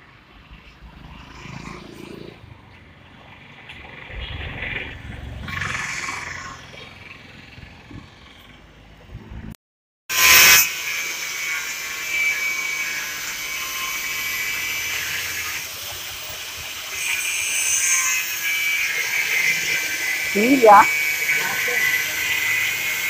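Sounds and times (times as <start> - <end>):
angle grinder grinding metal: 10.1 - 23.0.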